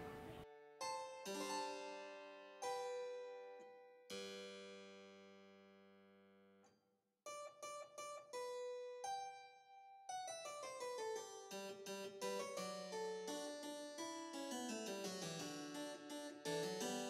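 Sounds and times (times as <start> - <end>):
harpsichord fugue: 0.0 - 0.4.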